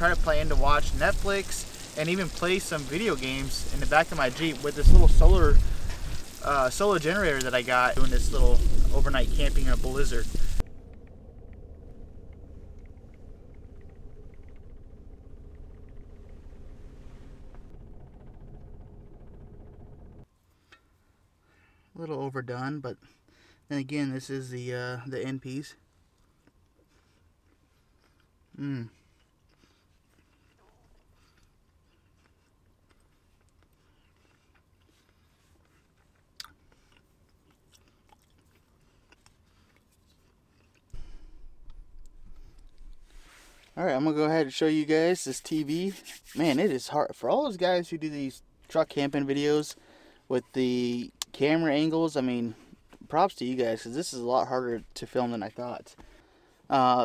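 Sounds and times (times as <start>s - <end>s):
sleet and rain ticking on windows: 0.0s - 10.6s
storm wind rumbling against car: 4.8s - 20.2s
man chewing: 26.0s - 43.4s.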